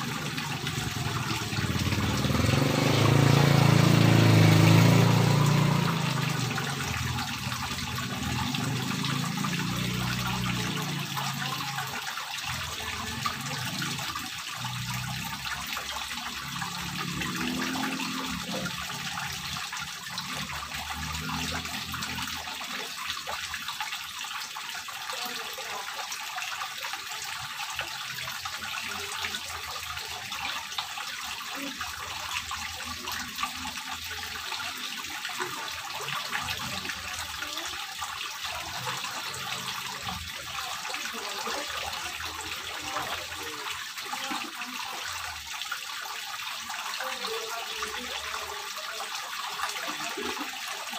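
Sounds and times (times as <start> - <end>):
fountain water trickling and splashing: 0.0 - 50.9.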